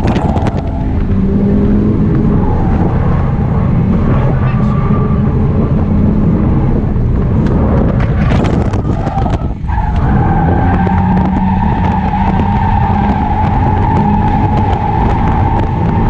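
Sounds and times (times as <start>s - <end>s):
car engine running hard: 0.0s - 16.0s
high tyre squeal: 2.3s - 5.5s, 8.5s - 16.0s.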